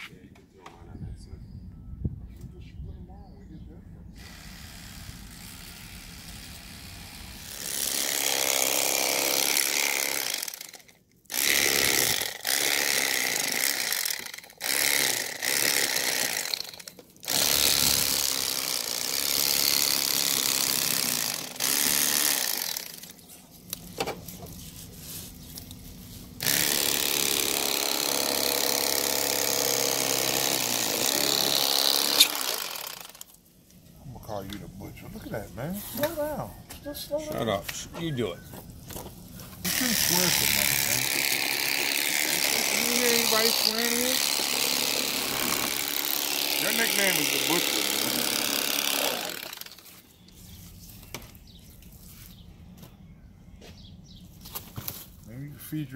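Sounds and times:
electric knife buzzing: 4.2 - 23.2, 26.4 - 33.3, 39.6 - 50.0.

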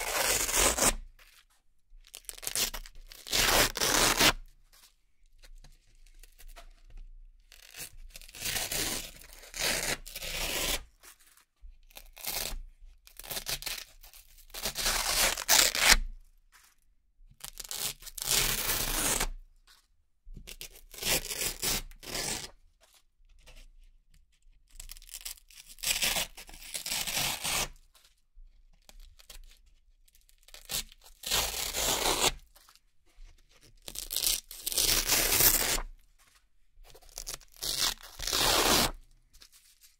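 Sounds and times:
velcro ripping apart: 0.0 - 1.0, 2.3 - 4.4, 14.6 - 16.0, 24.9 - 27.7, 30.5 - 32.4, 33.9 - 35.9, 37.1 - 39.0.

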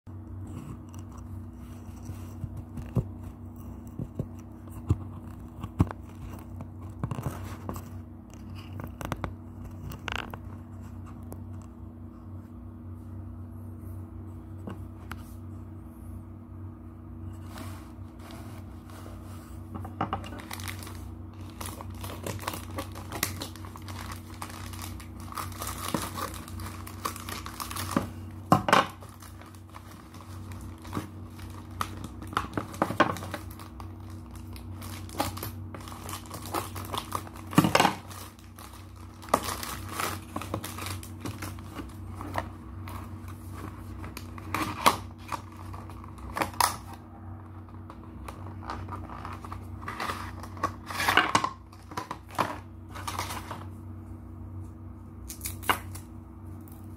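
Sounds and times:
steady low hum: 0.1 - 56.9
plastic bag crinkling: 20.2 - 47.0, 47.7 - 53.7
plastic tearing: 20.2 - 47.0.

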